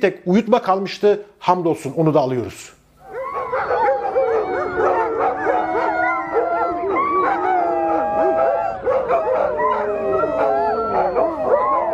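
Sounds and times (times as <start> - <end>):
dogs howling and yelping: 3.0 - 11.9.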